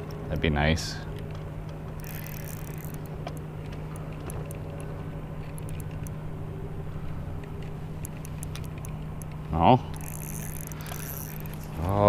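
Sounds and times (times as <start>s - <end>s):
boat motor humming: 0.0s - 12.0s.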